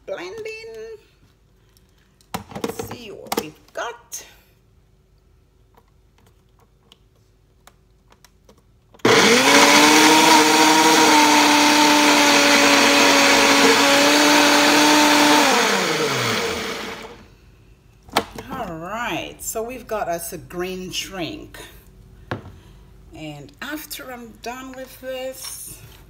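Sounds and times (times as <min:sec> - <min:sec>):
blender motor running: 0:09.0 - 0:17.2.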